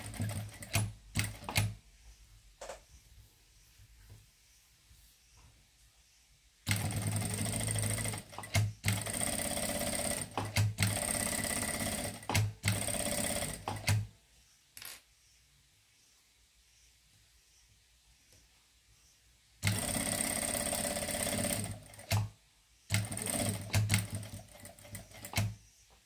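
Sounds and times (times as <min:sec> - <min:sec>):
sewing machine running: 0:00.0 - 0:01.7, 0:06.7 - 0:14.0, 0:19.6 - 0:22.2, 0:22.9 - 0:25.5.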